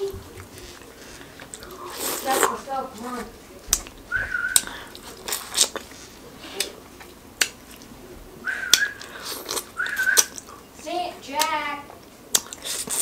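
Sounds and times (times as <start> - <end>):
wet chewing: 0.4 - 7.9, 8.5 - 10.7, 11.4 - 13.0
short high whistle: 9.8 - 10.3.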